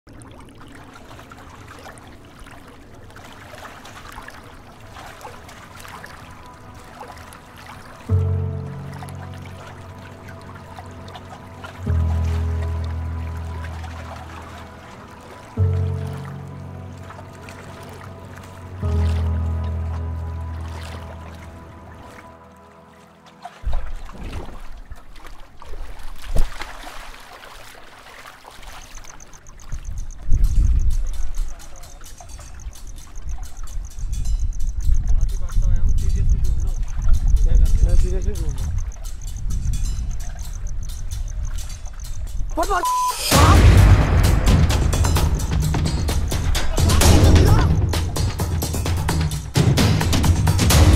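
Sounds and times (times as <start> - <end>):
river water lapping and gurgling: 0.0 - 50.9
low rumble: 43.3 - 50.9.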